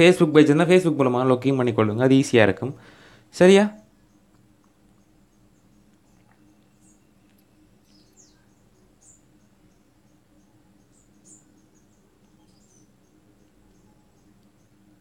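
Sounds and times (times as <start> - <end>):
faint room hum: 0.0 - 15.0
faint high-pitched chirps: 3.8 - 15.0.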